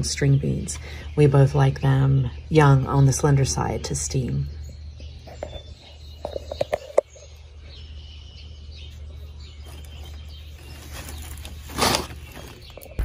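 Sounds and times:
birds chirping faintly: 0.0 - 13.0
paper bag crackling and rustling: 9.6 - 13.0.

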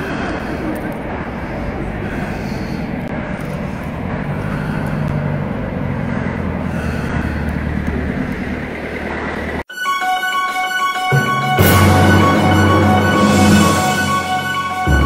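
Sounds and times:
vehicle engine rumble: 0.0 - 9.7.

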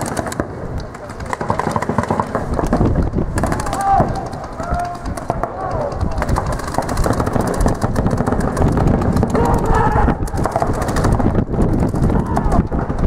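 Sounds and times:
paintball markers firing rapidly: 0.0 - 13.0
players shouting: 3.3 - 6.5, 9.2 - 10.8, 12.0 - 12.9.

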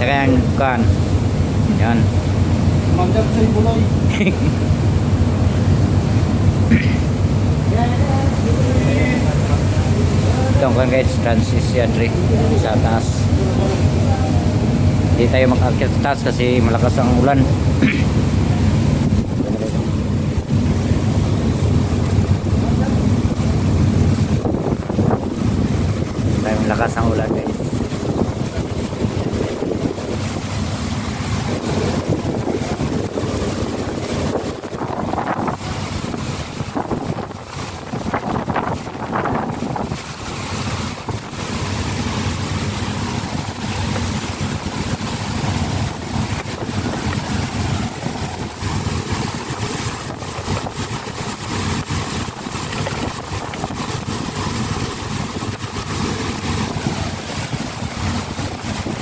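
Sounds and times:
heavy rain: 0.0 - 59.0
sea rushing: 0.0 - 59.0
wind gusting on microphone: 0.0 - 59.0.

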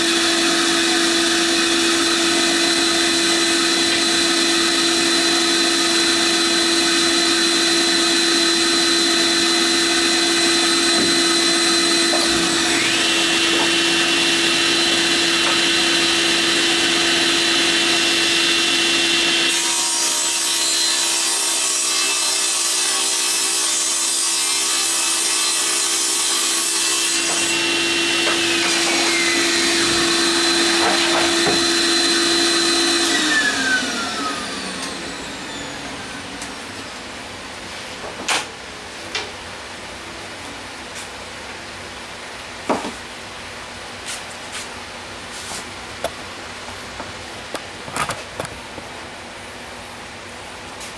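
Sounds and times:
table saw cutting plywood: 0.0 - 39.3
saw blade winding down: 27.2 - 36.6.

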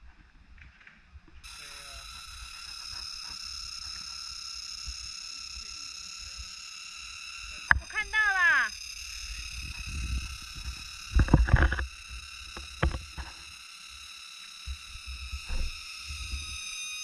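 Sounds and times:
camera rubbing against clothing: 1.4 - 4.3, 9.3 - 13.5
high-pitched tones: 1.5 - 13.4.

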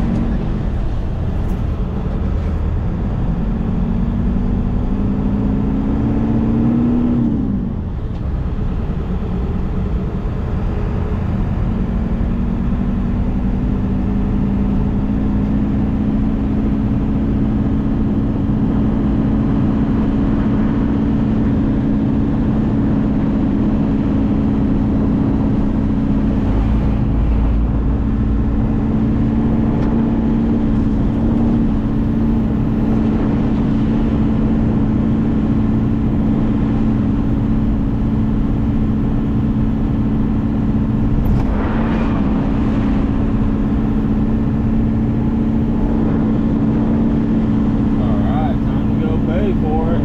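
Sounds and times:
diesel engine droning: 0.0 - 50.0
truck rolling on dirt road: 7.7 - 50.0.

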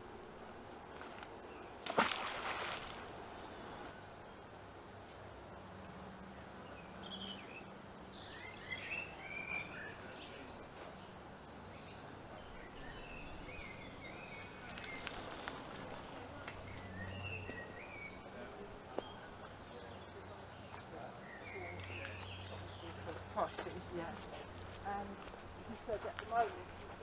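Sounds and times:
small birds chirping: 6.3 - 27.0.

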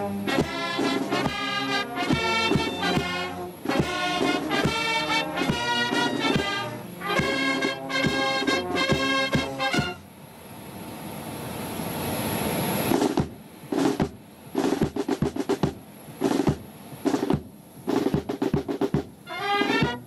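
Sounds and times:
drum roll: 0.0 - 10.0, 12.9 - 20.0
snare rolls and drum strokes: 0.0 - 10.0, 12.9 - 20.0.

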